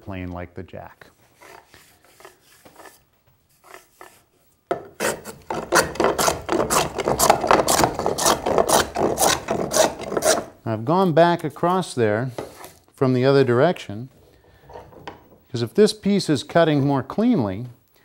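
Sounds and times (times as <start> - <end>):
hand plane shaving wood: 5.0 - 10.5.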